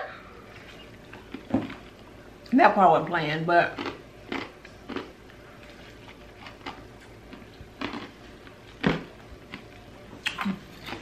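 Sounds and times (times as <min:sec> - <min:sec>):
person chewing crushed ice: 0:03.8 - 0:11.0.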